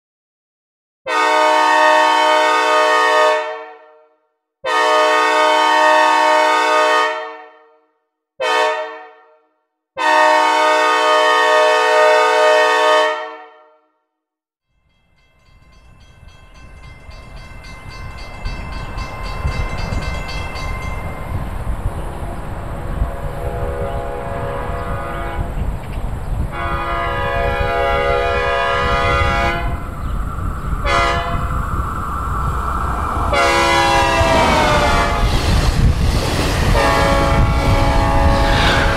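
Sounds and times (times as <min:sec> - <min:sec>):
train horn blasts: 0:01.1 - 0:07.8, 0:08.4 - 0:13.9, 0:22.8 - 0:25.6, 0:26.5 - 0:29.9, 0:30.8 - 0:31.5, 0:33.3 - 0:35.3, 0:36.7 - 0:38.9
train rumble: 0:15.2 - 0:38.9.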